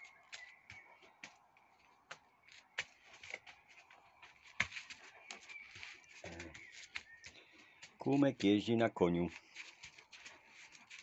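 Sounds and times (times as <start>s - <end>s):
light rustling: 9.3s - 11.0s.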